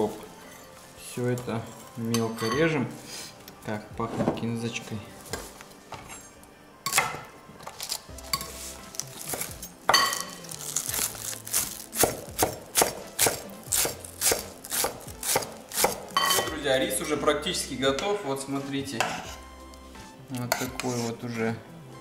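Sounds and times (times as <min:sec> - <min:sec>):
knife chopping on wooden board: 0:11.9 - 0:16.6.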